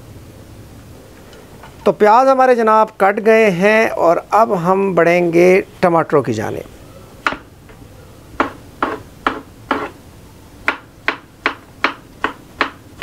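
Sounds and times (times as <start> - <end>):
knife chopping on wooden board: 7.2 - 7.4, 8.4 - 10.0, 10.6 - 13.0.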